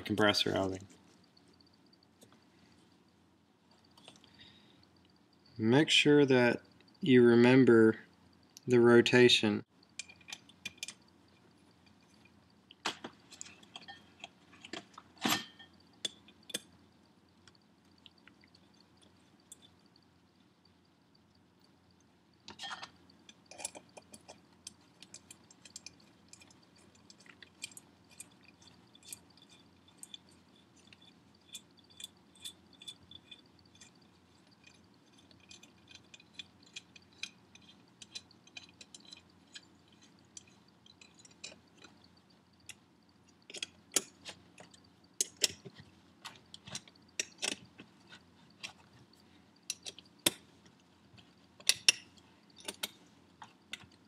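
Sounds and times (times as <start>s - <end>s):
wrench clicking on metal bolts: 34.6s - 41.9s.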